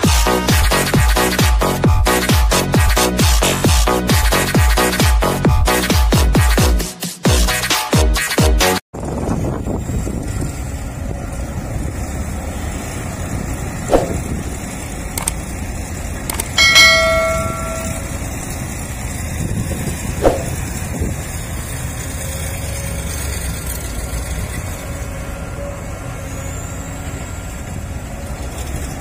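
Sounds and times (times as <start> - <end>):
excavator diesel engine running: 9.0 - 29.0
ringing metallic clang: 16.6 - 18.6.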